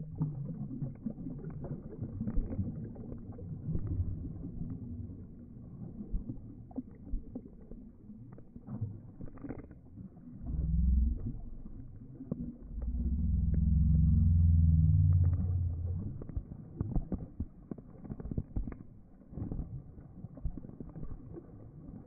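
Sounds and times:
low rumble: 0:10.4 - 0:16.6
water dripping: 0:10.4 - 0:16.6.

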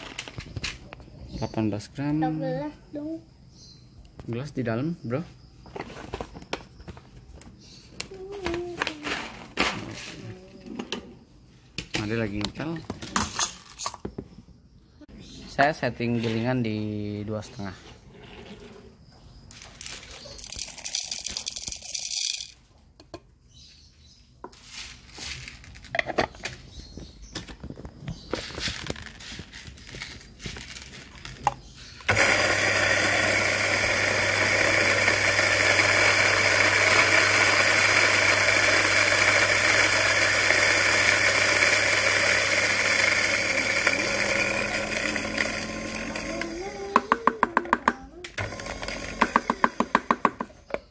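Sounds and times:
coffee beans and parts rattling: 0:12.9 - 0:14.0, 0:19.5 - 0:22.6, 0:24.7 - 0:26.5, 0:27.6 - 0:47.0
coffee grinder whirring: 0:19.8 - 0:22.6, 0:32.1 - 0:47.7, 0:48.4 - 0:50.5.

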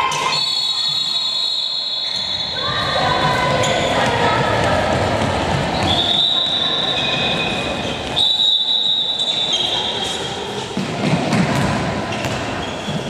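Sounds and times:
shoe squeals: 0:00.0 - 0:04.2, 0:05.8 - 0:10.8, 0:12.1 - 0:13.0.

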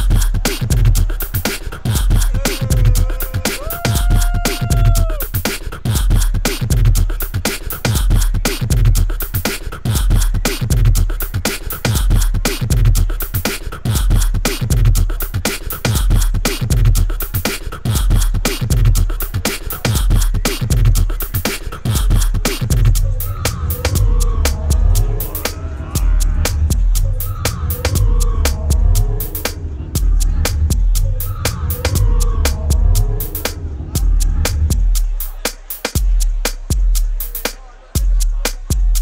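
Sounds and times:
deep bass pulse: 0:21.9 - 0:25.4, 0:26.0 - 0:35.2.

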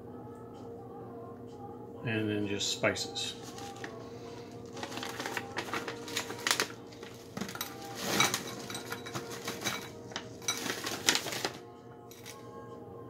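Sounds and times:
pretzels rattling inside bag: 0:03.4 - 0:12.4
snack bag crinkling: 0:03.4 - 0:12.4.

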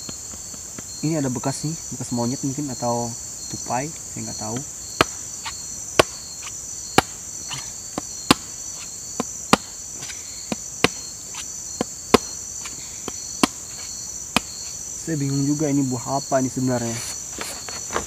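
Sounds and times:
crickets and insects chirping: 0:00.0 - 0:18.0
blade chopping into hard fruit: 0:05.0 - 0:06.3.

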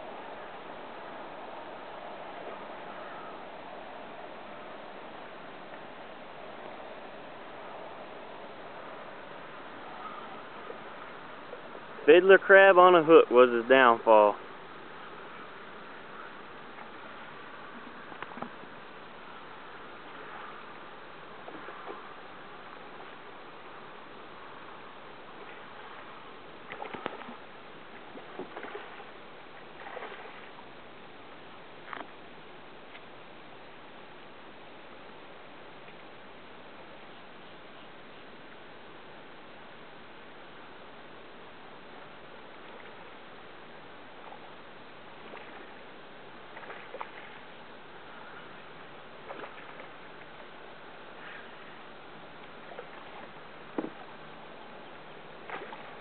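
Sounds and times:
kayak paddle splashes and drips: 0:14.4 - 0:33.1, 0:41.7 - 0:56.0
water splashing and dripping: 0:25.3 - 0:30.6, 0:45.1 - 0:47.7, 0:49.1 - 0:51.7, 0:55.3 - 0:56.0.

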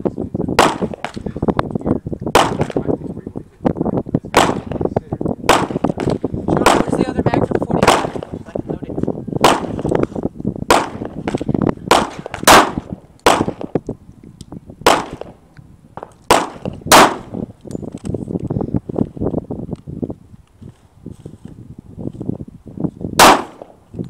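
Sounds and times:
pistol shots: 0:00.6 - 0:01.3, 0:02.3 - 0:02.8, 0:04.3 - 0:04.8, 0:05.4 - 0:07.0, 0:07.8 - 0:08.3, 0:09.4 - 0:09.9, 0:10.7 - 0:13.8, 0:14.8 - 0:15.4, 0:16.0 - 0:17.4, 0:23.2 - 0:23.8.

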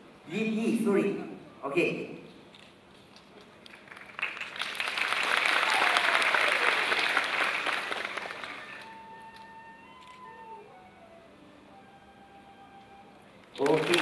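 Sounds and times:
audience applause: 0:03.6 - 0:09.0, 0:13.5 - 0:14.0
bamboo flute holding a note: 0:08.8 - 0:13.3.

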